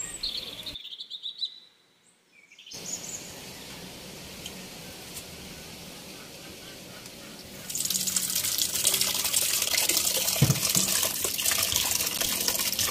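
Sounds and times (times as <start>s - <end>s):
birds chirping: 0.0s - 12.9s
tap water running into steel bowl: 7.7s - 12.9s.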